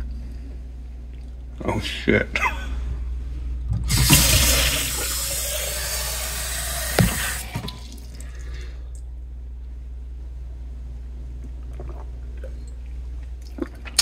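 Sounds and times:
tap water running into glass: 3.9s - 8.0s.

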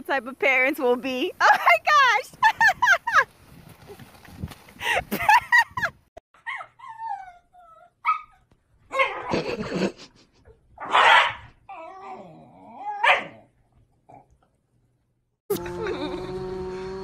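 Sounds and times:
dogs yipping and barking: 6.4s - 9.5s, 10.8s - 13.4s.

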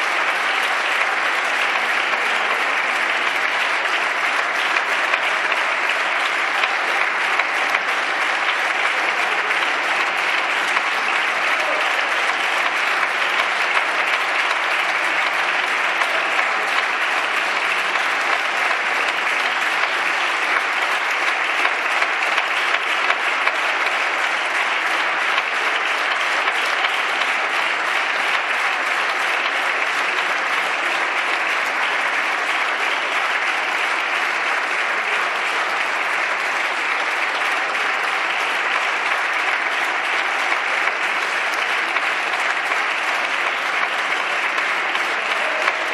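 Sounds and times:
crowd applauding in a reverberant hall: 0.0s - 45.9s.

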